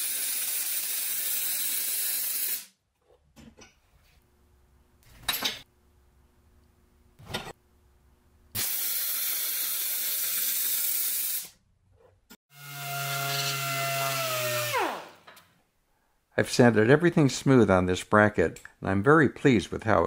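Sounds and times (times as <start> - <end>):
welder arc hissing crackle: 0.0 - 2.7, 8.6 - 11.6.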